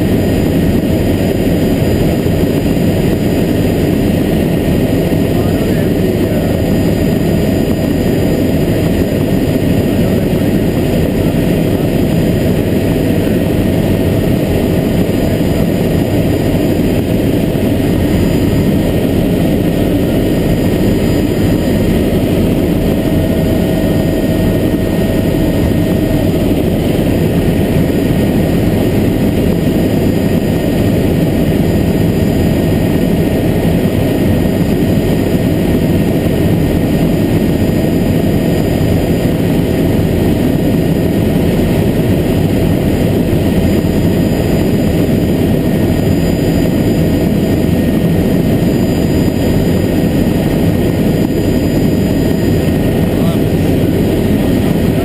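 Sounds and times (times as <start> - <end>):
helicopter engine and rotor: 0.0 - 55.0.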